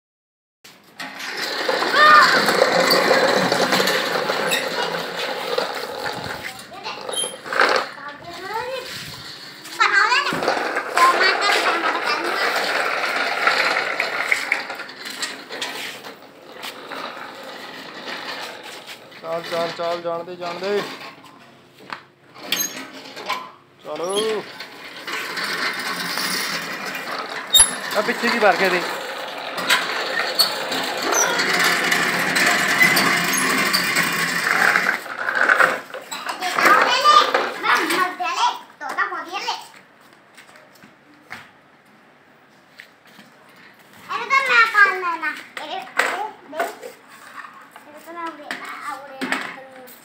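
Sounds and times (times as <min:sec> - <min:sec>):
metal scraping along ground: 0:00.7 - 0:21.6, 0:22.3 - 0:38.6, 0:46.0 - 0:50.0
metal toy tractor rattling: 0:01.0 - 0:07.9, 0:09.4 - 0:21.2, 0:22.4 - 0:38.1
chain drive rattling: 0:24.2 - 0:34.9.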